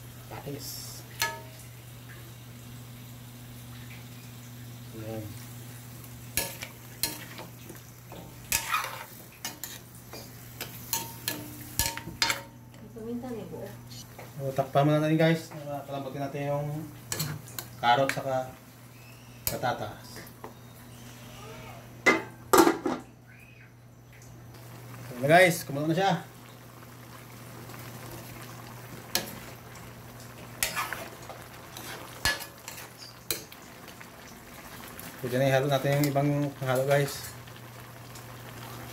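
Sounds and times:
metal ladle scraping a wok: 0:08.1 - 0:12.4, 0:30.6 - 0:31.2, 0:31.8 - 0:33.1
spatula clanking against pan: 0:08.1 - 0:12.5.

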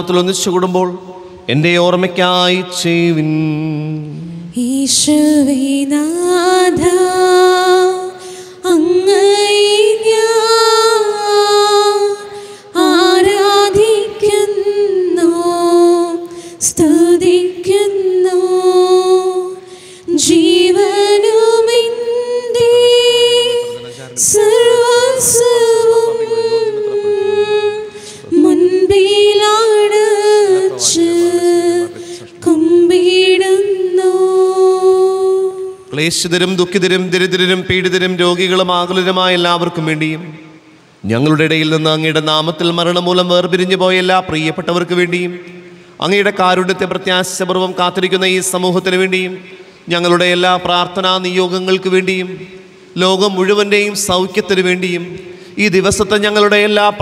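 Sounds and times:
woman singing a hymn unaccompanied: 0:03.4 - 0:35.9.

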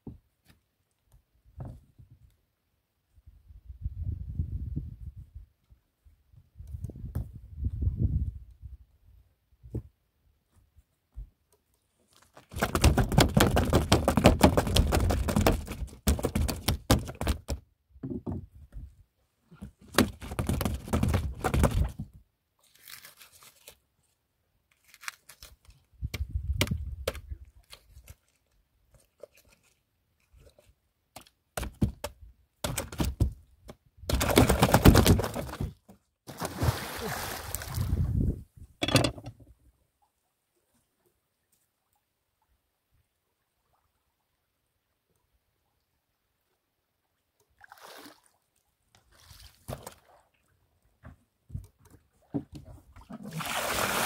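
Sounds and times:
fish thumping on wooden planks: 0:12.5 - 0:18.4, 0:19.6 - 0:22.0, 0:31.6 - 0:33.4, 0:34.1 - 0:35.8.

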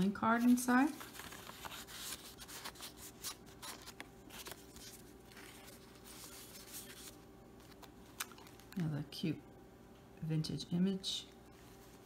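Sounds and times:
paper and card rubbing: 0:00.4 - 0:07.8.

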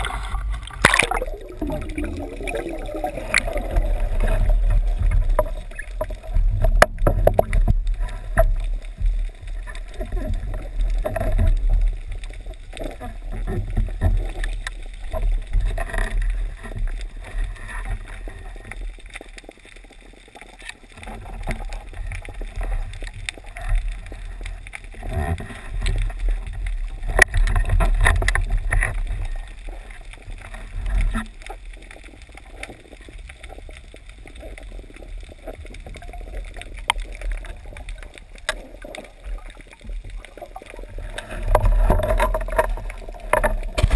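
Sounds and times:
underwater rumble of moving water: 0:00.0 - 0:43.9
clicks and knocks from gear: 0:24.7 - 0:29.4, 0:35.4 - 0:43.9.

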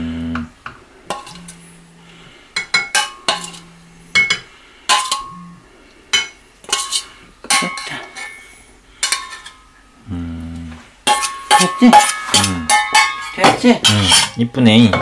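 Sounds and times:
metal spoon clinking against bowl: 0:01.1 - 0:01.6, 0:02.6 - 0:05.5, 0:06.2 - 0:08.4, 0:09.0 - 0:09.7, 0:11.1 - 0:15.0.

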